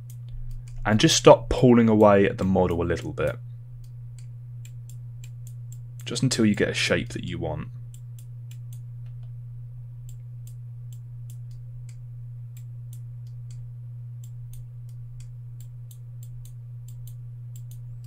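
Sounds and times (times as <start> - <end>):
steady low hum: 0.0 - 18.0
computer mouse clicks: 14.2 - 18.0.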